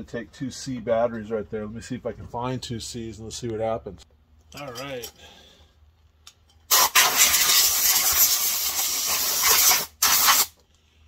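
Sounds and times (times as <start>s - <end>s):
pressurised jet hissing: 6.7s - 10.5s.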